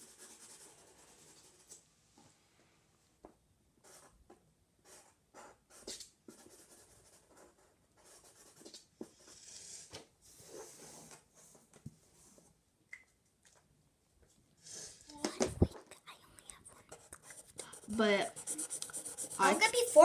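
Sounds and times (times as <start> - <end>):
marker scratching on paper: 3.8 - 4.2, 4.8 - 11.1, 16.5 - 20.0.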